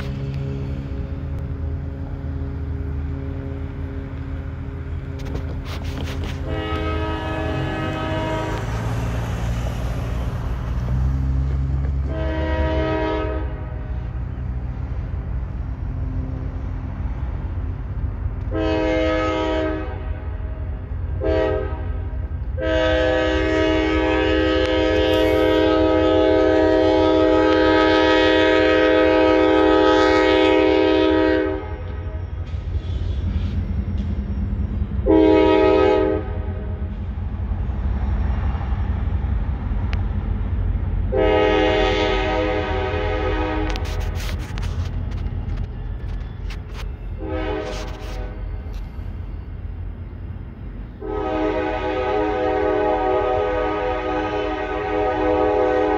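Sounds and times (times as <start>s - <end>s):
locomotive engine rumble: 0.0s - 55.9s
locomotive air horn blasts: 5.2s - 9.3s, 11.8s - 14.5s, 18.4s - 32.2s, 35.0s - 37.1s, 41.1s - 48.8s, 51.0s - 55.9s.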